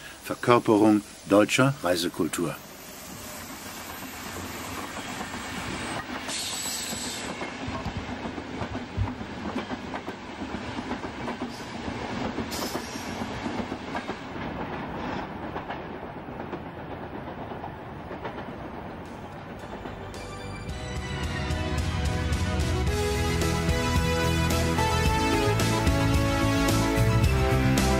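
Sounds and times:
hissing bursts: 0:00.0 - 0:07.4
train rumble: 0:00.0 - 0:27.9
train wheels clattering on rails: 0:03.1 - 0:22.2.

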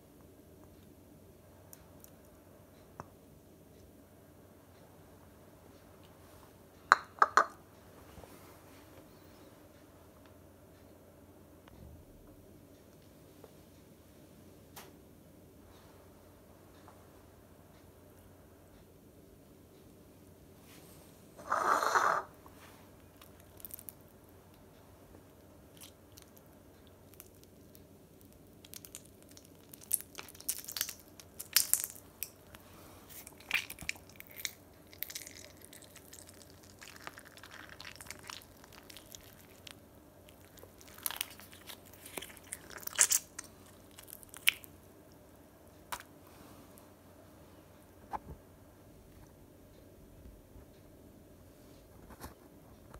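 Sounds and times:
quiet crunching and squishing: 0:20.6 - 0:46.9.

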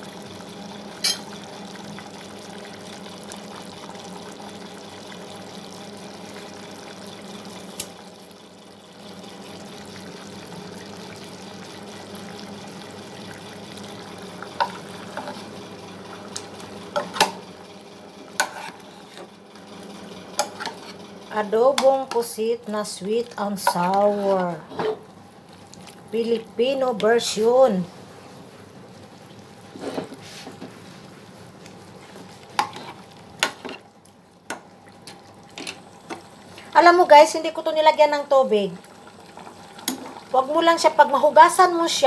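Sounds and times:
pot simmering with hiss: 0:00.0 - 0:42.0.

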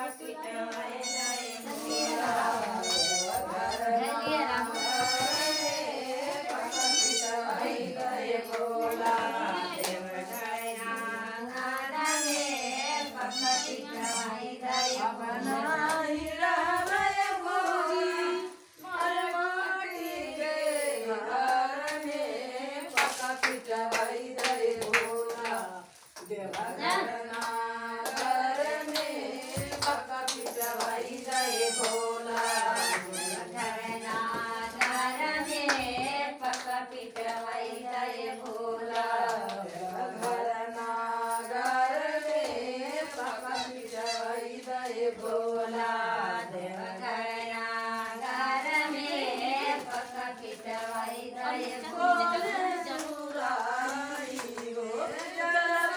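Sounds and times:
women singing together: 0:00.0 - 0:55.9
hand clapping: 0:08.0 - 0:12.1, 0:22.8 - 0:37.5, 0:38.3 - 0:40.5, 0:51.6 - 0:55.9.

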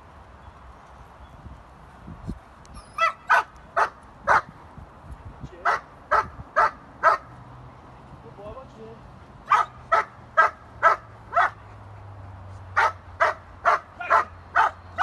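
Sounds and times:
dog barking: 0:03.0 - 0:04.5, 0:05.7 - 0:07.3, 0:09.5 - 0:11.6, 0:12.8 - 0:14.8.

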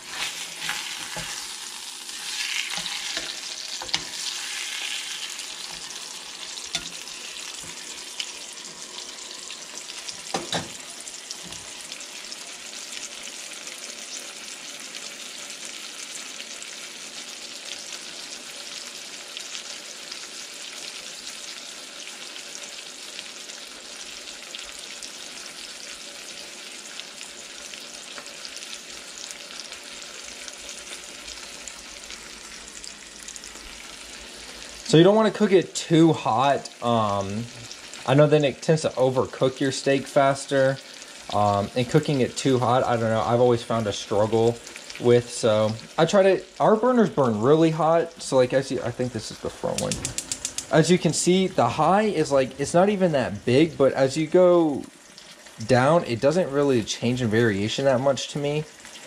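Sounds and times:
steak sizzling in a skillet: 0:00.0 - 0:59.0
metal tongs clinking on pan: 0:02.7 - 0:04.2, 0:06.7 - 0:07.0.

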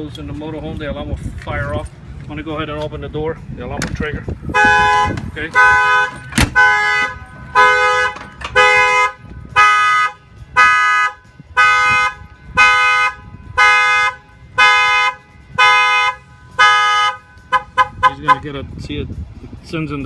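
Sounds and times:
vehicle horn honking alarm: 0:04.5 - 0:18.5.

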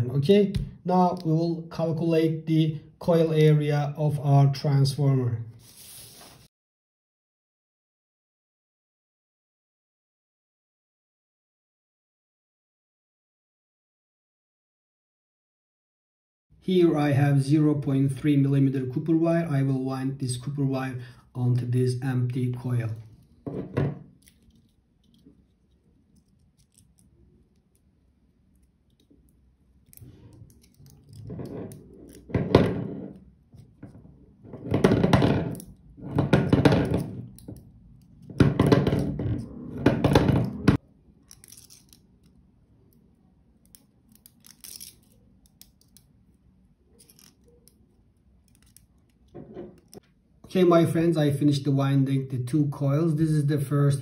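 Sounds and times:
plastic bobbin scraping in fingers: 0:29.9 - 0:39.4.

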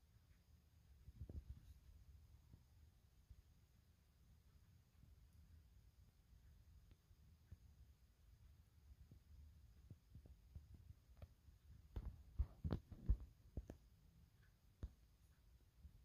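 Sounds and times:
faint low hum: 0:00.0 - 0:16.0
soft thumps and clicks: 0:09.8 - 0:15.2.

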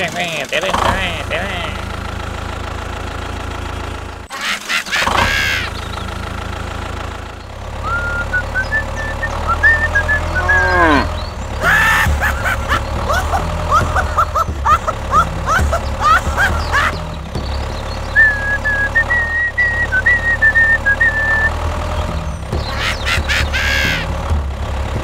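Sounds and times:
tractor engine idling: 0:00.0 - 0:25.0
squeaky chirps and gliding tones: 0:07.3 - 0:24.3.

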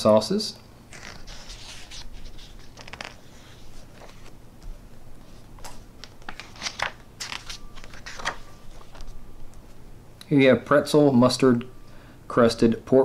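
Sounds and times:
book pages turning: 0:00.9 - 0:09.8.

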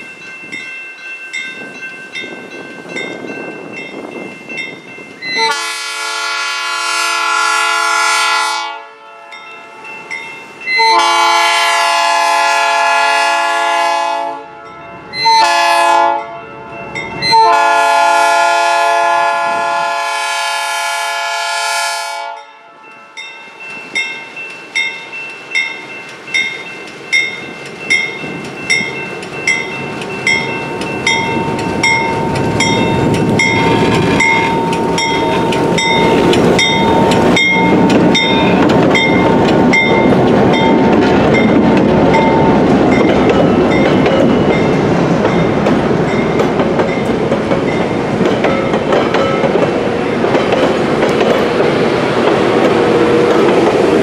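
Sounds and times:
crossing bell ringing: 0:00.0 - 0:06.4, 0:09.0 - 0:13.0, 0:14.4 - 0:18.8, 0:22.2 - 0:54.0
locomotive air horn blasts: 0:05.3 - 0:09.4, 0:10.8 - 0:16.4, 0:17.3 - 0:22.8
train wheels rolling: 0:22.9 - 0:54.0
locomotive engine: 0:23.5 - 0:54.0.

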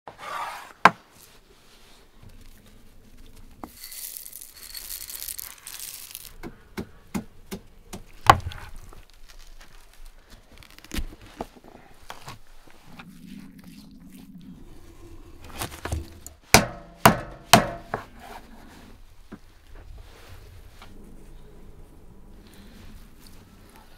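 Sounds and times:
raw meat rustling: 0:04.2 - 0:06.5, 0:08.0 - 0:16.5
pestle crushing garlic: 0:15.9 - 0:18.1.

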